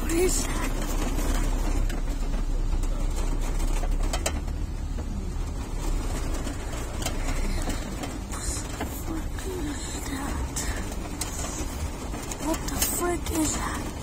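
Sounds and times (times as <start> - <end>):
car rumbling on road: 0.0 - 14.0
rain hissing on car: 0.0 - 14.0.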